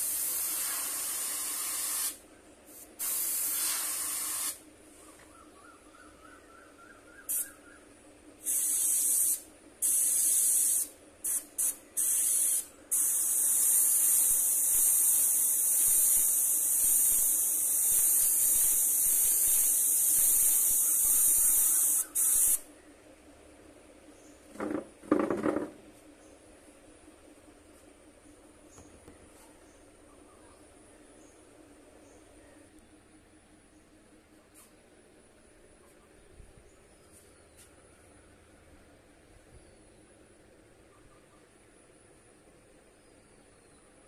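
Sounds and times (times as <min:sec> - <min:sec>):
airbrush spraying air: 0:00.0 - 0:04.6, 0:07.3 - 0:07.6, 0:08.4 - 0:22.7.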